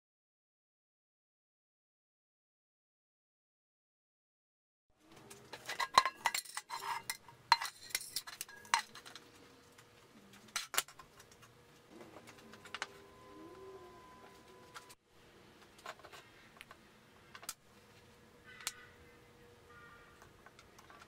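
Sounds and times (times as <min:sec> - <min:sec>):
metal paint can clinking: 0:05.5 - 0:09.1.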